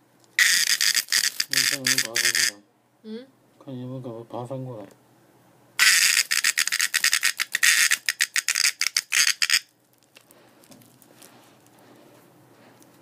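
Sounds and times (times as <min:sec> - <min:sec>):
cicada distress buzz: 0:00.4 - 0:02.6, 0:05.8 - 0:09.7.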